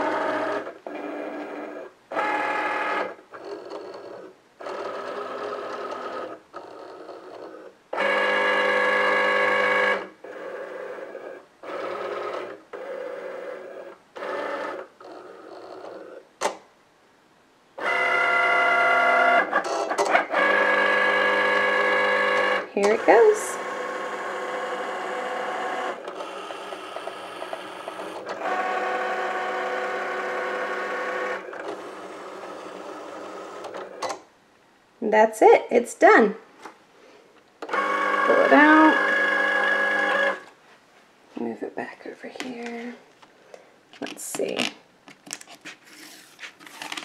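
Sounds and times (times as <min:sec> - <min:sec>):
cutting machine motors whirring: 0:00.0 - 0:16.2, 0:17.8 - 0:34.2, 0:37.6 - 0:40.5.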